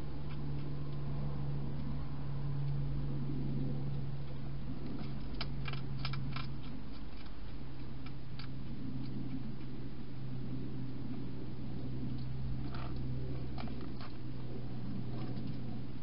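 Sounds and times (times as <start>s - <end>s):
low steady hum: 0.0s - 16.0s
hedgehog crunching dry food: 4.7s - 9.9s, 11.9s - 15.8s.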